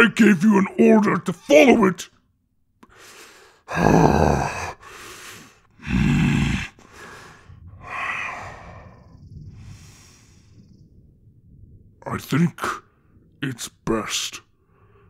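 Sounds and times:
man breathing heavily: 2.8 - 10.6.

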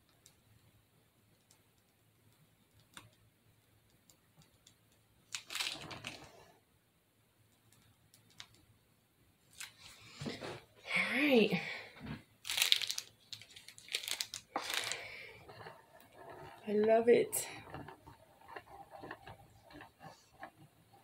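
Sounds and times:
plastic bag crinkling: 5.3 - 6.4, 9.5 - 10.1, 12.4 - 16.6.

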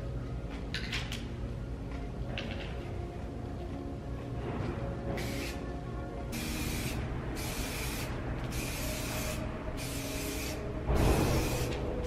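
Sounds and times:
spray paint can hissing: 5.2 - 5.6, 6.3 - 11.8.

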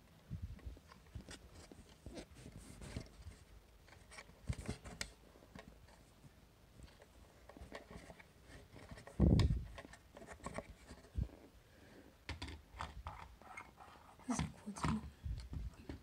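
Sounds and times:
wall clock rubbing and clicks: 12.8 - 14.9.

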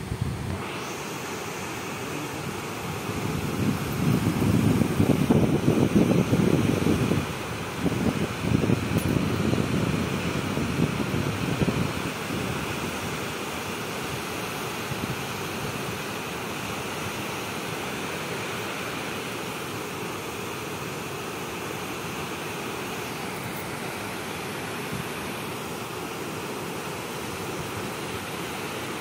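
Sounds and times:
wind buffeting microphone: 0.0 - 0.7, 2.4 - 13.1.

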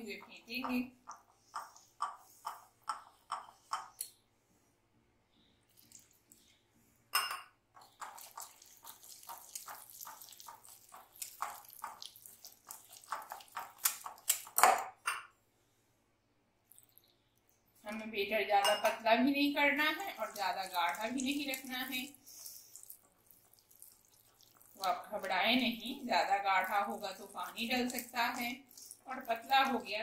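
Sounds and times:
whisk scraping glass bowl: 7.8 - 14.6, 19.8 - 30.0.

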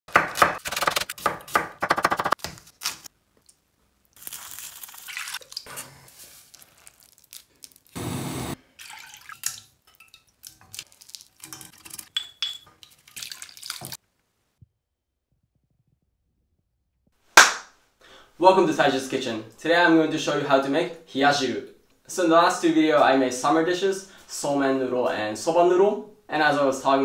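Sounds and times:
water pouring and dripping: 4.2 - 7.9, 8.6 - 14.0.

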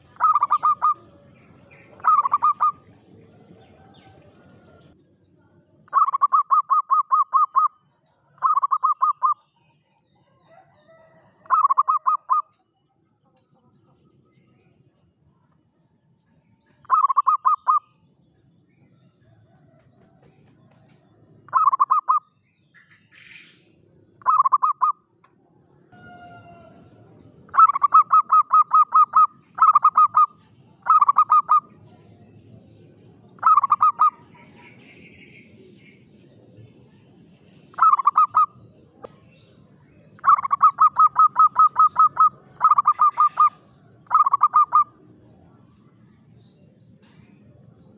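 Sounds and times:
dove cooing in staccato notes: 0.0 - 3.0, 5.9 - 7.7, 8.4 - 9.4, 11.4 - 12.6, 19.8 - 22.2, 24.2 - 25.0, 27.5 - 31.8, 33.4 - 35.2, 37.7 - 38.6, 40.2 - 45.0.

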